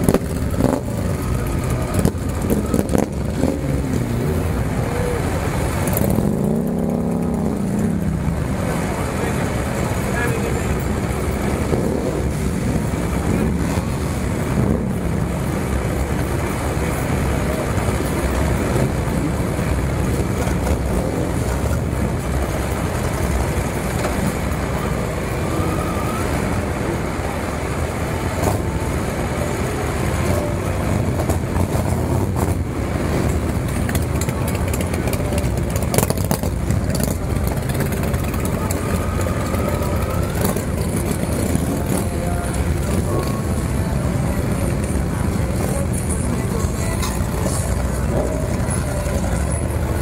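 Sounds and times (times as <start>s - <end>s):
many motorcycle engines: 0.0s - 50.0s.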